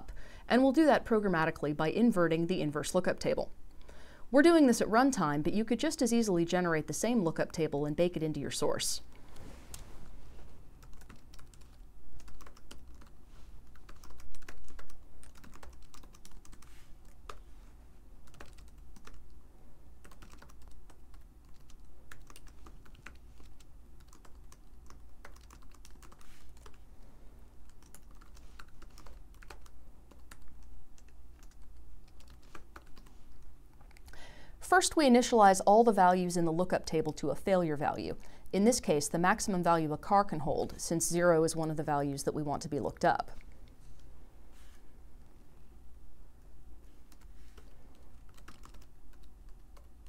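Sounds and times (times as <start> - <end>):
low steady hum: 0.0 - 50.0
keyboard typing: 10.8 - 17.5, 18.2 - 19.4, 20.0 - 26.8, 27.6 - 34.2, 46.9 - 50.0.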